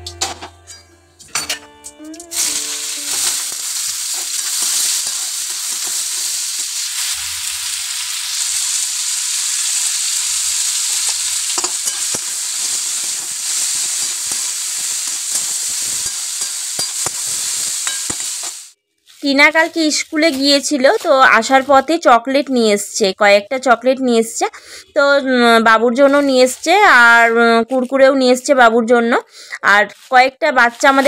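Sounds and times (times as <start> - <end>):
metal spatula scraping a pan: 0.0 - 7.2, 10.7 - 21.8
potatoes sizzling in hot oil: 2.3 - 22.1, 30.0 - 31.0.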